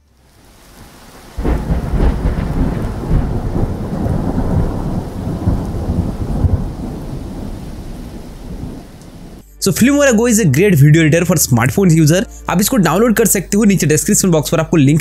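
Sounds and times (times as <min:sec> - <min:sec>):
rain hiss: 0:00.0 - 0:09.5
thunder rumbling: 0:00.1 - 0:09.4.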